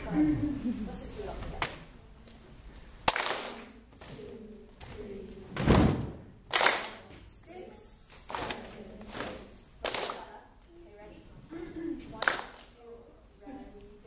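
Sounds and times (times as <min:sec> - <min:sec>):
people clapping: 0:03.0 - 0:03.8, 0:06.5 - 0:07.1, 0:08.3 - 0:10.4, 0:12.1 - 0:12.7
heavy foot stomp: 0:05.6 - 0:06.3.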